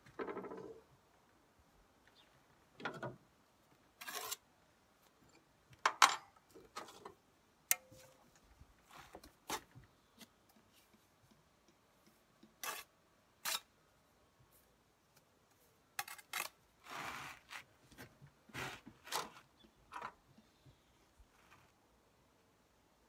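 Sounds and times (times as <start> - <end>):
trowel scraping and tapping brick: 12.4 - 13.7.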